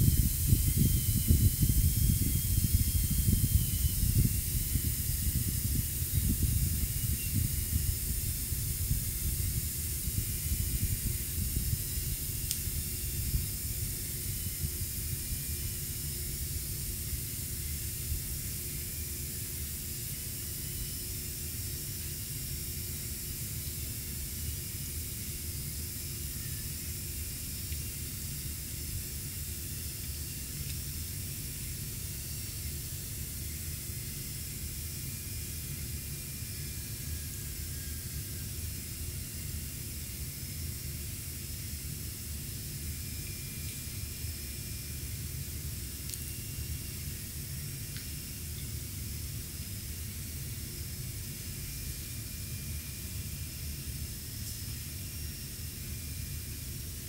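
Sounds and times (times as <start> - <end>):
air hissing from puncture: 0.0 - 17.4.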